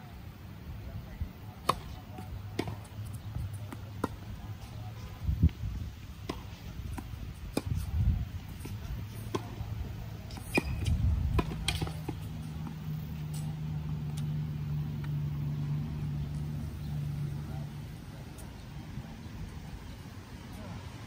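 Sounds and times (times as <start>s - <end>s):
tennis ball hit and bouncing: 1.6s - 5.2s, 6.2s - 17.5s.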